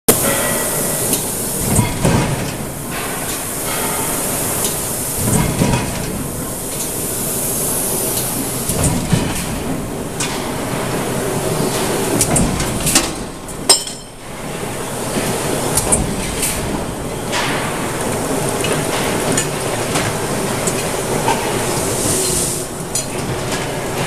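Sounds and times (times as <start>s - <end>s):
loud air hiss: 0.1s - 1.8s, 2.6s - 5.4s, 6.2s - 8.7s, 21.7s - 22.7s.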